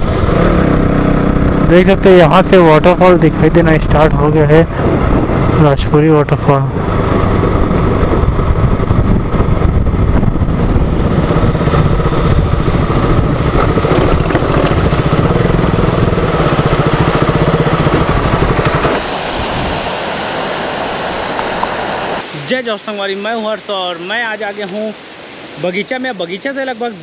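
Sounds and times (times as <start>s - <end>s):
motorcycle engine running: 0.0s - 6.0s, 6.7s - 20.0s
waterfall rushing: 12.6s - 27.0s.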